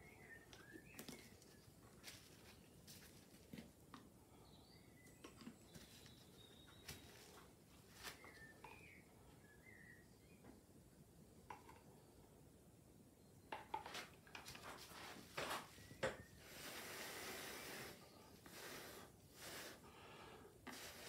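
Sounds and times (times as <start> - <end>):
person blowing airy hiss: 16.4 - 21.0.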